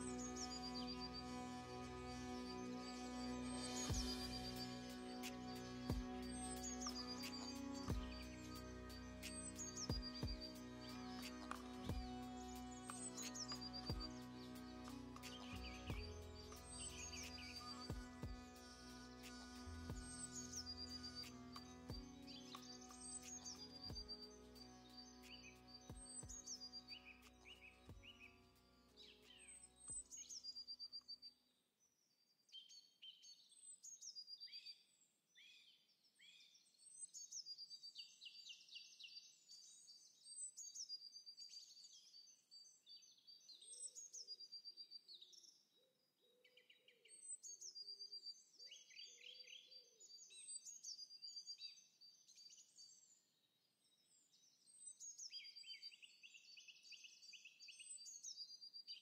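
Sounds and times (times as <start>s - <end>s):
background music: 0.0s - 30.3s
songbirds singing: 0.0s - 31.2s.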